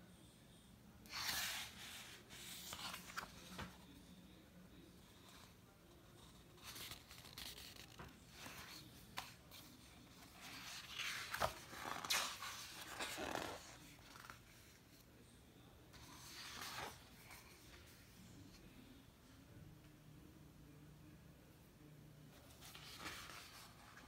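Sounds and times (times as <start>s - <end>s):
paper pages rustling: 1.1s - 4.0s, 6.1s - 14.8s, 16.0s - 18.1s, 22.4s - 24.0s.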